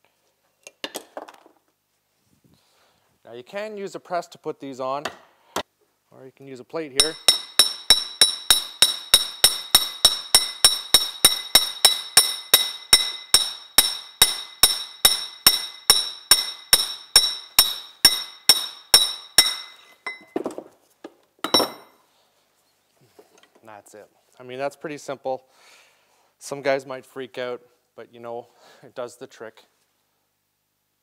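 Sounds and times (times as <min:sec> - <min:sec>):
hammer striking metal plate: 0:07.0 - 0:20.4, 0:21.5 - 0:21.9.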